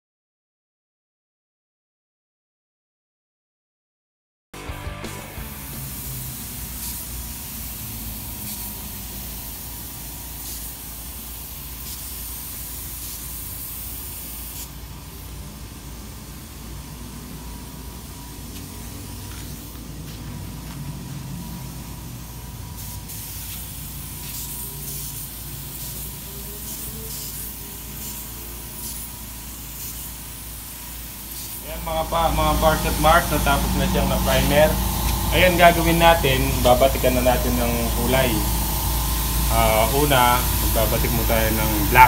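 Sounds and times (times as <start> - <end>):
spray gun hissing: 5.2 - 20.3, 21.4 - 42.0
steady low hum: 28.6 - 42.0.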